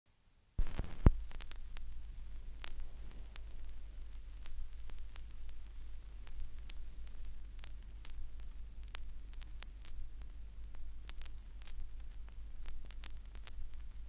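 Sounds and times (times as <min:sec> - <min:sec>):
stylus thump on record: 0:00.6 - 0:01.4
steady low hum: 0:00.6 - 0:14.0
vinyl surface crackle and clicks: 0:00.6 - 0:14.0.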